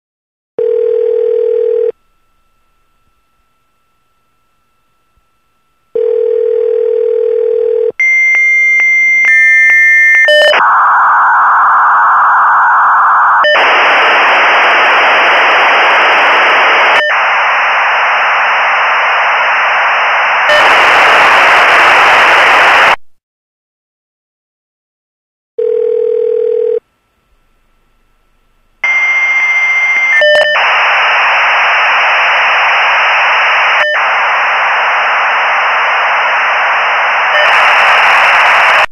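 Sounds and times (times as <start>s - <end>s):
dial tone: 0.6s - 2.0s, 6.0s - 13.7s, 25.6s - 26.8s, 28.8s - 30.6s, 33.8s - 34.1s
loud harsh modem hissing: 13.4s - 23.0s, 28.8s - 38.9s
modem handshake tones and chirps: 28.8s - 31.4s.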